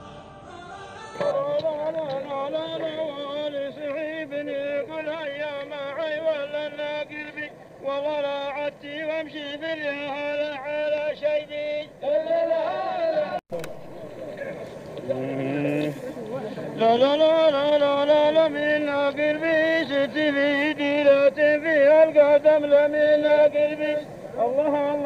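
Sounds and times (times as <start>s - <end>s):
man chanting melody: 1.2s - 14.2s, 16.7s - 25.0s.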